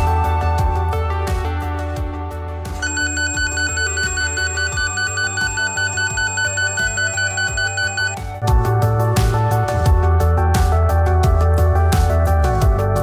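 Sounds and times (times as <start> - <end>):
background music: 0.0 - 13.0
rapid high electronic beeps: 2.8 - 8.2.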